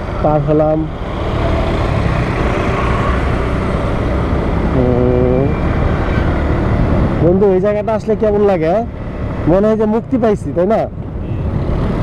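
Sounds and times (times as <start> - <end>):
motorcycle engine: 0.0 - 9.6
wind noise: 1.0 - 8.0, 10.8 - 12.0.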